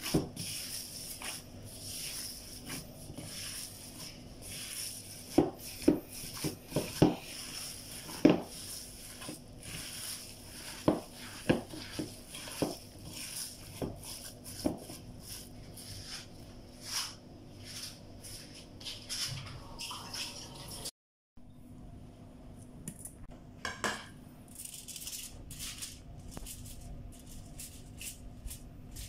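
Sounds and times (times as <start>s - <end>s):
hand kneading meat mixture: 0.0s - 19.6s.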